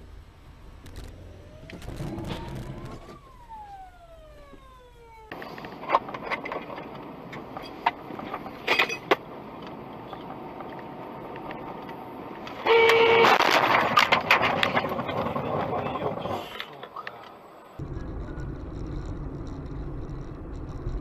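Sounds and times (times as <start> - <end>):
road noise: 0.0 - 21.0
siren wailing: 1.0 - 5.8.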